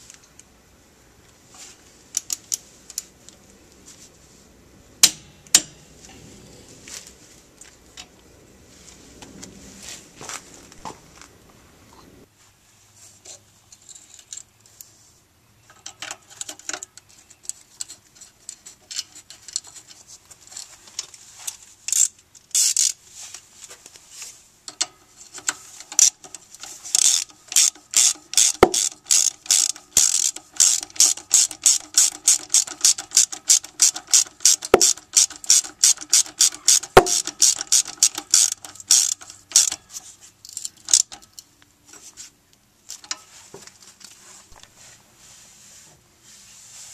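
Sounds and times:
ratchet wrench clicking: 21.9 - 23.0, 25.4 - 39.8, 40.4 - 41.4.

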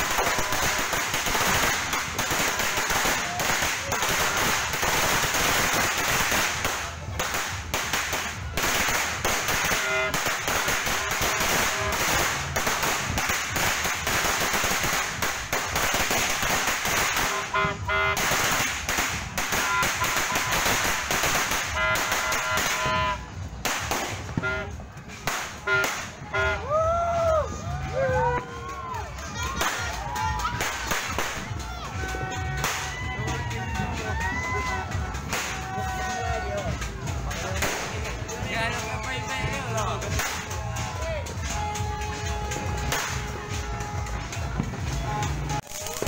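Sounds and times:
firecrackers cracking: 0.0 - 27.6, 28.4 - 46.0.

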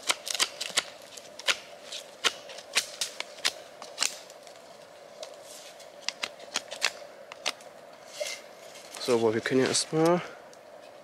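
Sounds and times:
branches snapping off wood: 0.0 - 4.6.

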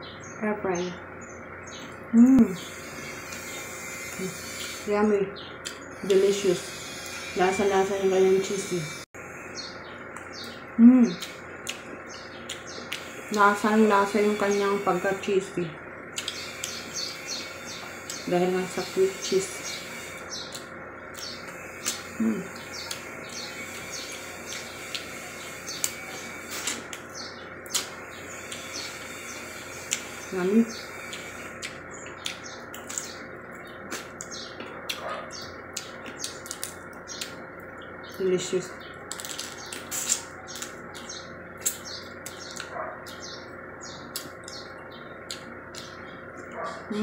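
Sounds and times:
shrimp being peeled and chewed: 31.0 - 37.8, 39.0 - 43.2.

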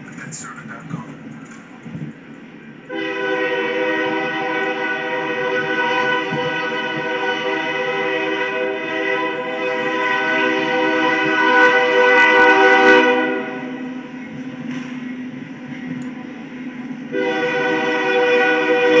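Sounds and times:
train horn chord blast: 2.9 - 14.2, 17.0 - 19.0.

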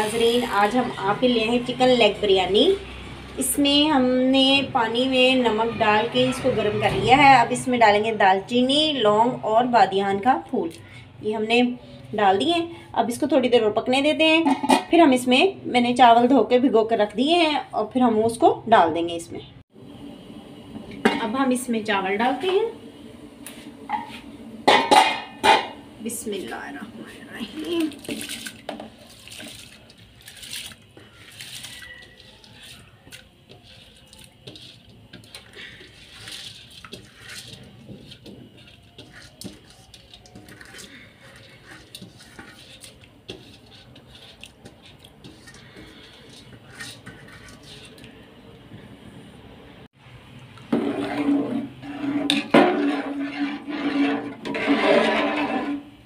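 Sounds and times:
water sloshing in pot: 23.5 - 49.2, 50.6 - 56.0
rice scraped from steel bowl: 26.4 - 48.2, 50.7 - 56.0.

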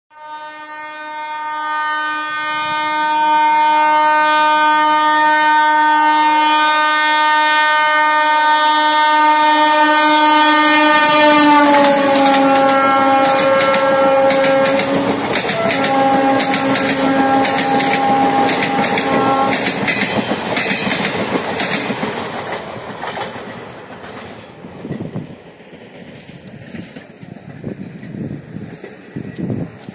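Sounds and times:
train horn blowing: 0.1 - 20.4
train wheels clattering on rail joints: 11.3 - 29.9.

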